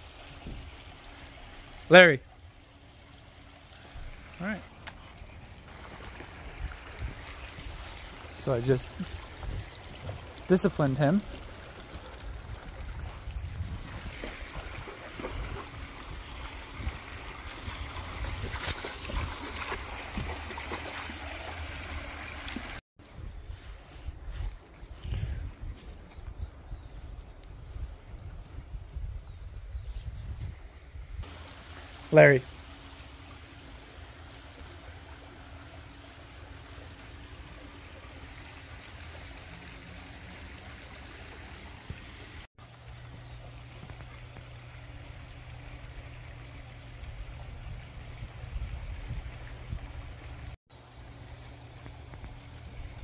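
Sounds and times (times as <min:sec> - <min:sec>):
stream gurgling over rocks: 0:00.0 - 0:22.8, 0:31.2 - 0:53.0
water feature trickling: 0:00.0 - 0:22.8, 0:31.2 - 0:53.0.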